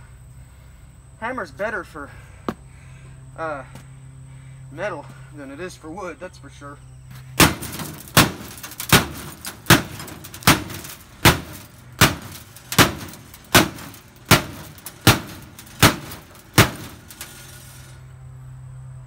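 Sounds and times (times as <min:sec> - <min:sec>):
hammer banging on metal cabinet: 0:07.4 - 0:17.3.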